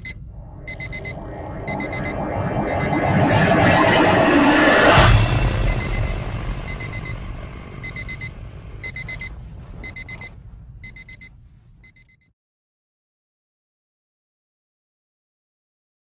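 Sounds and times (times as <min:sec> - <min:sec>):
low boom: 0:00.0 - 0:11.8
alarm clock beeping: 0:00.0 - 0:12.3.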